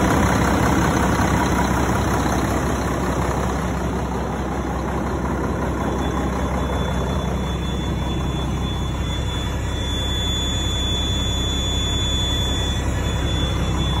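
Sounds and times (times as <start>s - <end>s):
diesel engine idling: 0.0s - 14.0s
thin high whine: 5.4s - 14.0s.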